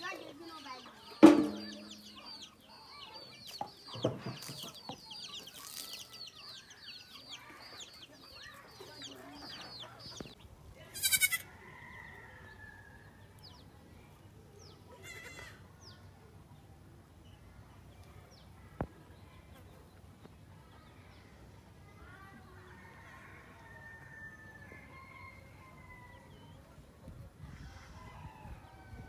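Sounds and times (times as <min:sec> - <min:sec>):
chicks peeping: 0:00.2 - 0:10.4
baby goat bleating: 0:10.9 - 0:11.5, 0:14.9 - 0:15.6
hen clucking: 0:11.0 - 0:11.4.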